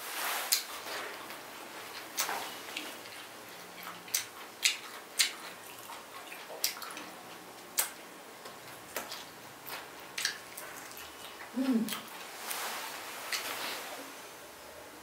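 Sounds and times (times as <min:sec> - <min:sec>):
close-up chewing: 0:00.5 - 0:12.3.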